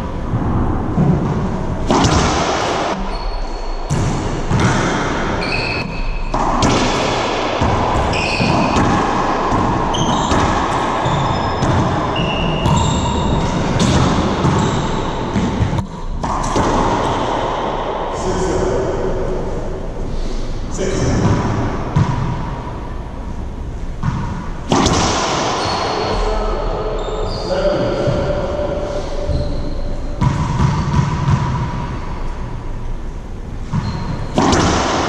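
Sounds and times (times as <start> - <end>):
racquetball smacks echoing: 0.4 - 3.2, 3.9 - 18.2, 23.9 - 26.4, 30.1 - 32.0, 33.6 - 35.0
sneakers squeaking on hardwood: 2.9 - 4.7, 5.4 - 6.4, 7.9 - 8.9, 9.9 - 16.4, 25.6 - 26.4, 29.3 - 32.3, 33.6 - 34.4.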